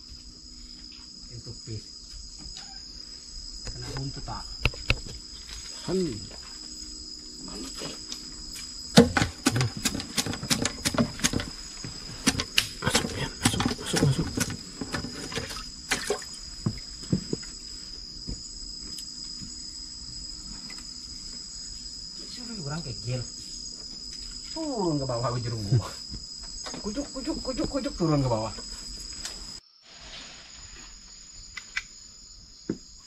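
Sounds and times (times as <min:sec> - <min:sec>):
crickets chorus: 0:00.0 - 0:33.0
splashes and sharp knocks: 0:08.9 - 0:11.5, 0:12.2 - 0:16.8.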